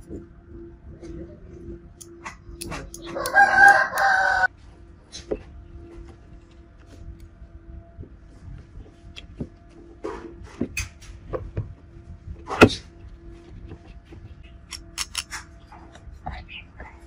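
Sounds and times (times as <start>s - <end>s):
drill parts clicking and knocking: 14.7s - 15.4s.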